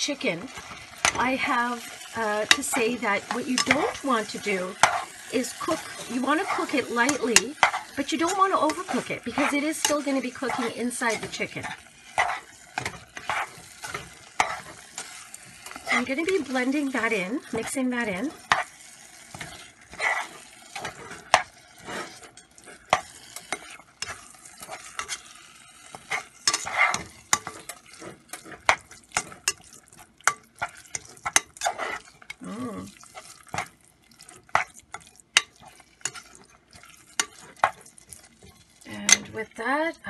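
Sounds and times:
spatula scraping metal pot: 0.0s - 39.4s
meat sizzling: 0.0s - 40.0s.

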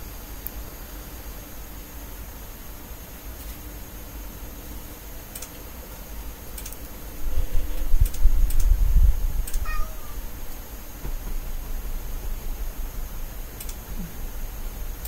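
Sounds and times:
light sharp clicks: 5.3s - 5.6s, 8.0s - 8.8s, 9.4s - 9.6s, 13.6s - 13.8s
handling noise thumps: 11.0s - 11.8s.

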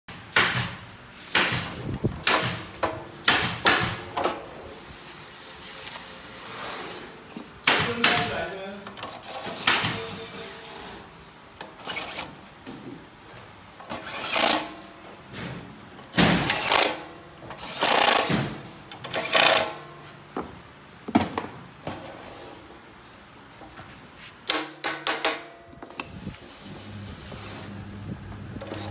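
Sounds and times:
metal parts clattering and scraping: 8.9s - 14.8s, 16.4s - 19.9s.

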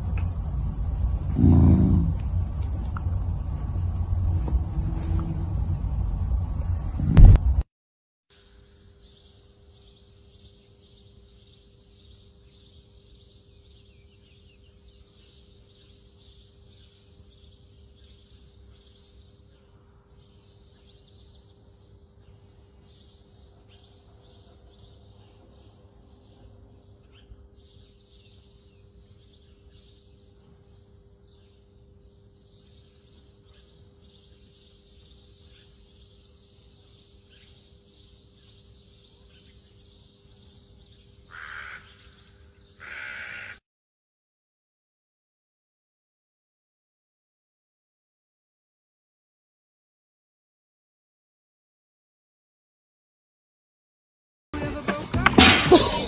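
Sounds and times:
low steady hum: 0.0s - 7.6s
small birds chirping: 8.4s - 43.6s.

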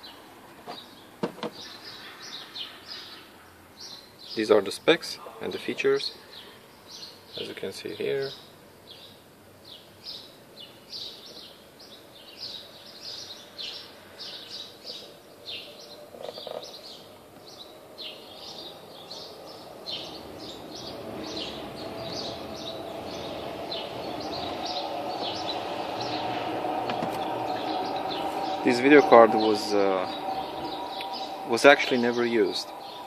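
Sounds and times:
background noise: 0.0s - 33.0s
small bird chirping: 6.3s - 26.4s.

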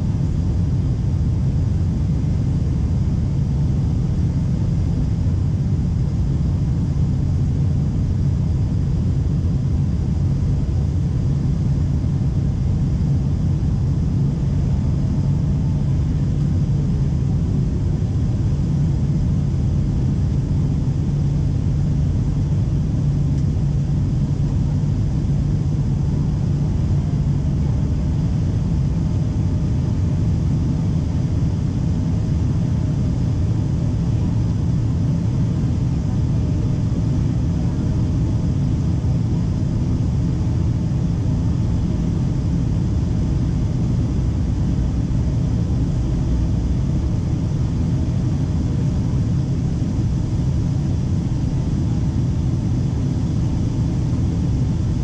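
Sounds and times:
constant low hum: 0.0s - 55.0s
jet engine and airflow rumble: 0.0s - 55.0s.

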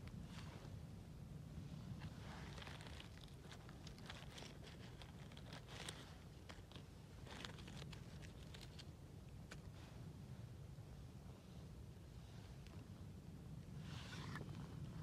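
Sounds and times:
low steady rumble: 0.0s - 15.0s
dry leaves crackling: 2.0s - 8.9s.

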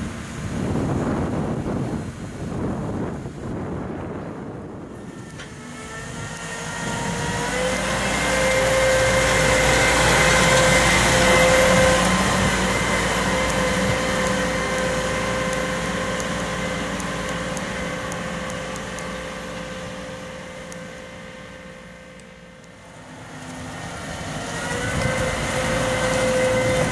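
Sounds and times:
steady whine: 2.8s - 26.9s
diesel engine running: 3.8s - 26.9s.

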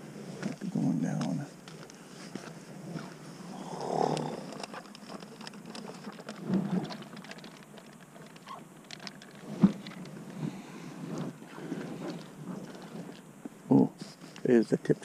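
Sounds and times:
fishing tackle clicking and rustling: 0.3s - 13.5s.

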